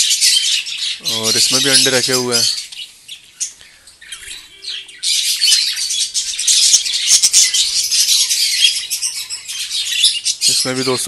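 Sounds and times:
budgerigars chattering: 0.0s - 11.0s.

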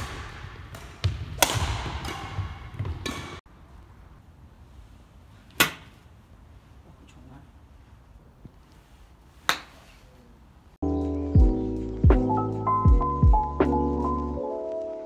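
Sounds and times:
badminton racket hitting shuttlecock: 0.0s - 3.4s.

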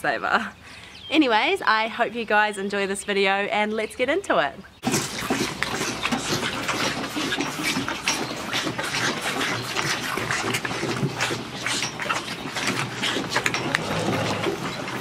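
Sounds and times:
calves slurping milk: 4.8s - 15.0s.

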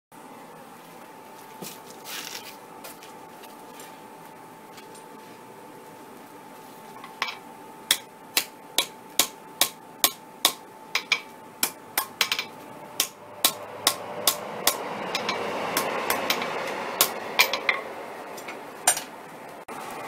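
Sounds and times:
hammer striking steel on anvil: 7.0s - 19.1s.

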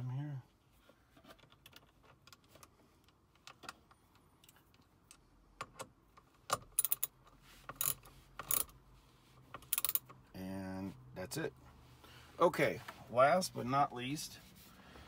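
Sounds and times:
screwdriver bit clicking and rattling: 6.7s - 7.1s, 9.6s - 10.1s.

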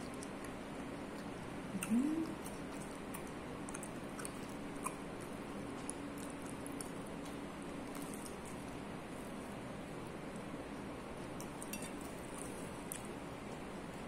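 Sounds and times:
person chewing food: 0.0s - 9.4s, 10.2s - 14.0s
steady low hum: 0.0s - 14.0s
wet mouth clicks: 1.2s - 6.9s.

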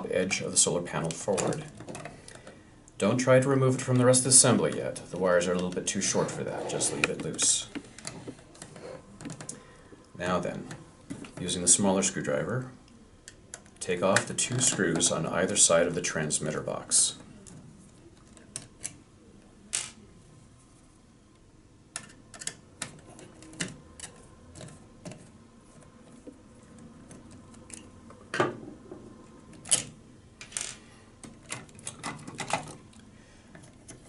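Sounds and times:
plastic parts clicking and knocking: 1.1s - 2.6s, 21.9s - 25.3s, 29.5s - 32.9s.

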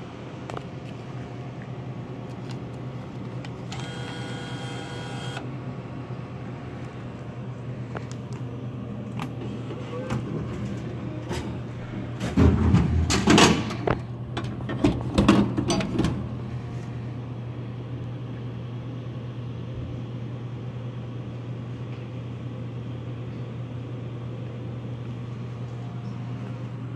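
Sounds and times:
vending machine low hum: 0.0s - 26.9s.

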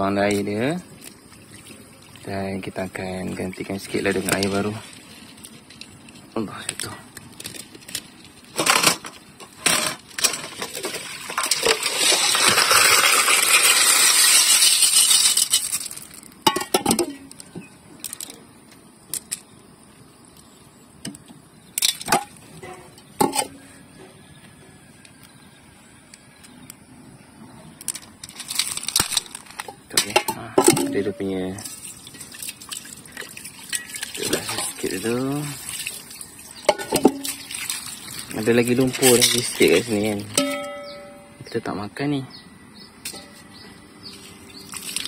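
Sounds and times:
water pouring and splashing: 0.0s - 17.4s, 27.9s - 41.1s, 44.0s - 45.0s
snail shells clinking on metal: 9.7s - 18.4s, 38.7s - 41.4s.

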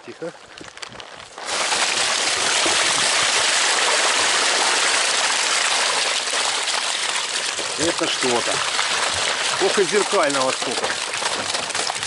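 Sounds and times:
water gushing onto tarpaulin: 0.1s - 12.0s.

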